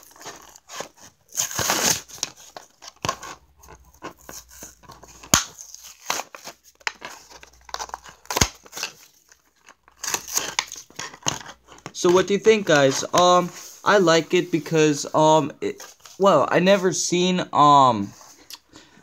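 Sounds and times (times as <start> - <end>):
packaging crinkling and tearing: 0.0 - 12.0.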